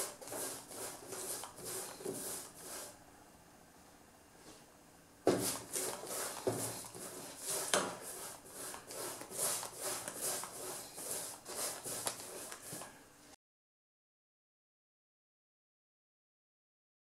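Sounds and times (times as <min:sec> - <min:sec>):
paint brush scratching corrugated iron: 0:00.0 - 0:03.0, 0:05.3 - 0:13.0.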